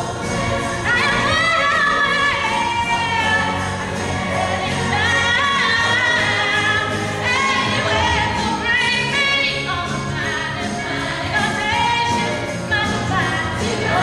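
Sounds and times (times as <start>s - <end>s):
female chorus singing: 0.0s - 14.0s
woman singing show tune: 0.8s - 3.8s, 4.8s - 14.0s.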